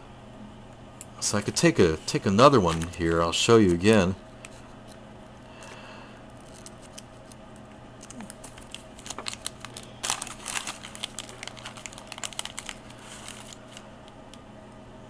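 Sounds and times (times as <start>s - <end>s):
plastic bag crinkling: 2.5s - 3.8s, 6.3s - 7.4s, 8.0s - 13.9s.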